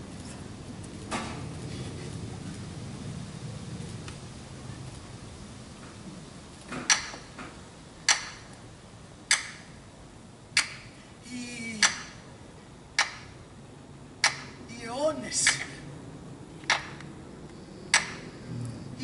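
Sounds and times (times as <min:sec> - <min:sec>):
short vocal sound falling in pitch: 0:11.2 - 0:12.2
sharp ticking: 0:11.7 - 0:12.3, 0:14.2 - 0:14.6, 0:17.9 - 0:18.4.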